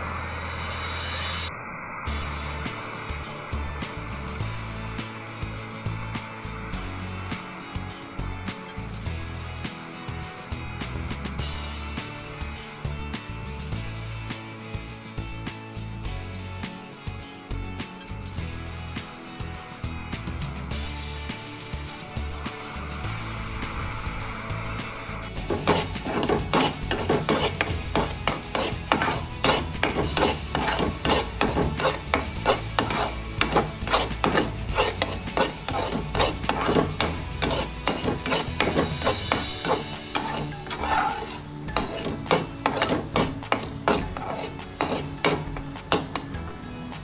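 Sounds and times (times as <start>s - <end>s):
metal spatula scraping a pan: 25.4s - 46.5s.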